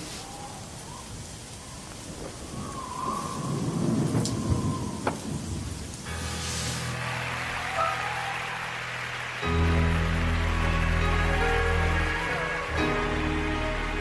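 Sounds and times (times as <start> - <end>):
thunder rumble: 0.0 - 8.9
steady rain: 0.0 - 14.0
thunder cracks: 2.1 - 6.3.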